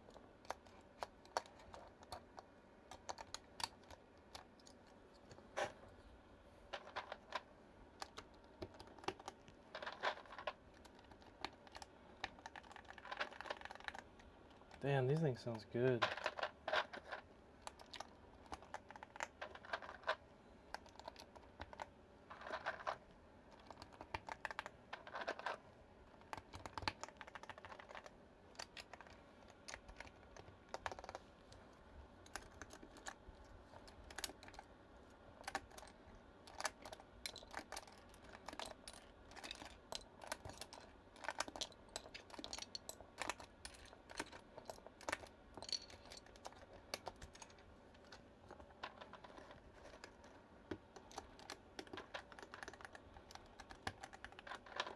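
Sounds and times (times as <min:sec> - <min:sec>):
mechanical keyboard typing: 0:08.0 - 0:14.1, 0:26.2 - 0:31.2, 0:32.3 - 0:33.2, 0:48.8 - 0:54.9.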